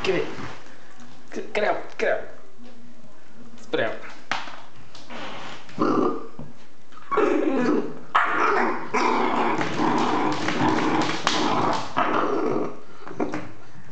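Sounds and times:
puppy growling and barking: 7.1s - 12.8s.

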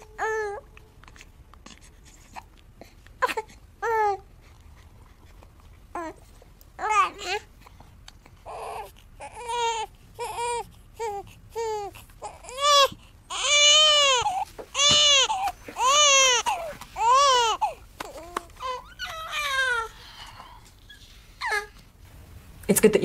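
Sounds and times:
infant crying: 8.4s - 20.6s, 21.4s - 21.8s.

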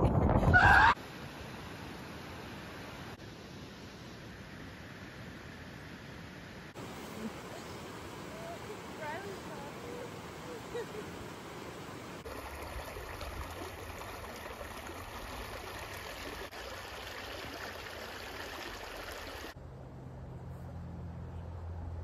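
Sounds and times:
creek water rushing over rocks: 6.8s - 19.6s.

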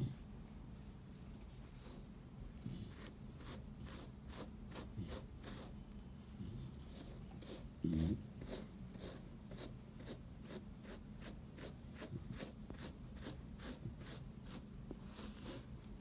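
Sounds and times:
brush strokes through fur: 2.7s - 5.8s, 8.4s - 16.0s.

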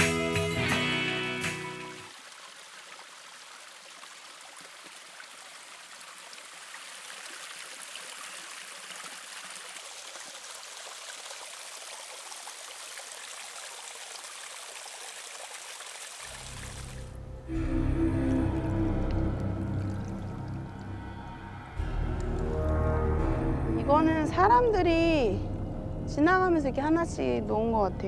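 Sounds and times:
small stream flowing: 1.7s - 22.9s.

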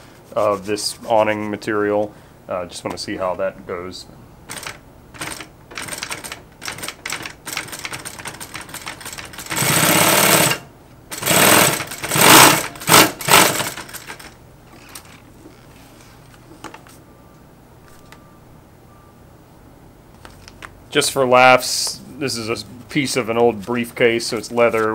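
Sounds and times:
sewing machine stitching: 4.5s - 15.1s.

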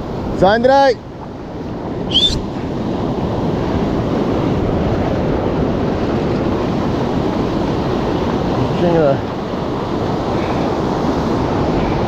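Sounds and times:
ocean surf washing onto beach: 0.0s - 12.0s
wind buffeting microphone: 0.0s - 12.0s.

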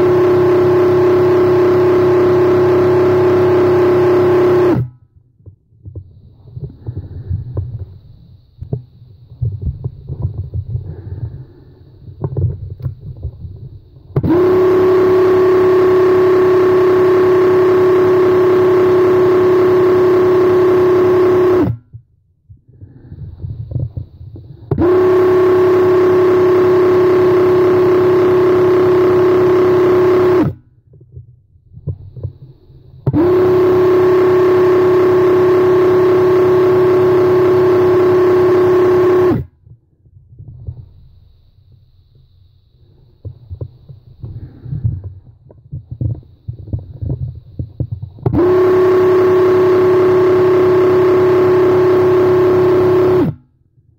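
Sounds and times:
paint sprayer motor whine: 0.0s - 5.0s, 13.9s - 21.8s, 22.9s - 30.6s, 31.9s - 39.5s, 45.9s - 53.5s.

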